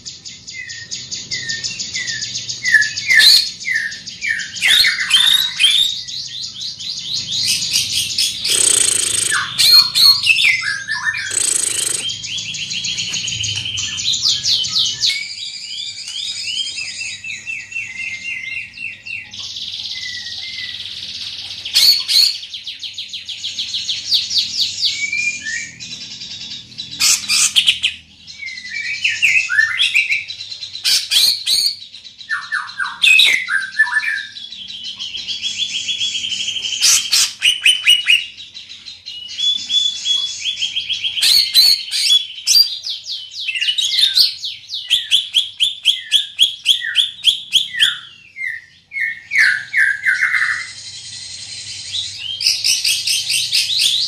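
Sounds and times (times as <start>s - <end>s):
bird singing trills and whistles: 0.0s - 54.0s
sharp bird clicks: 8.2s - 10.2s, 11.2s - 14.4s.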